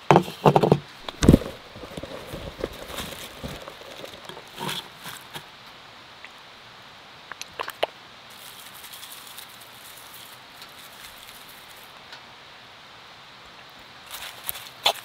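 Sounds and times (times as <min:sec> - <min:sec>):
chives handled into wooden bowl: 0:00.2 - 0:05.5.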